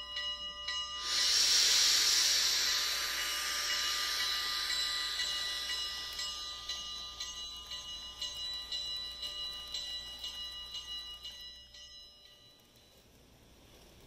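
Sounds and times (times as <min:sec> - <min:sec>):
model train metallic ringing: 0:00.0 - 0:14.0
light clicking of rolling cars: 0:07.0 - 0:14.0.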